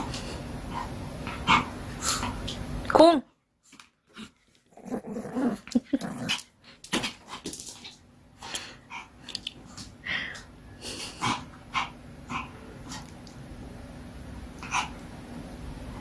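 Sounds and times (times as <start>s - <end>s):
dog growling: 4.1s - 7.1s.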